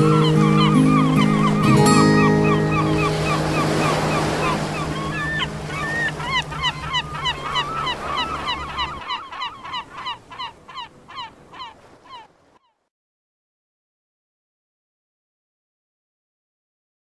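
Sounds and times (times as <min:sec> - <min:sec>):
gulls calling: 0:00.0 - 0:12.8.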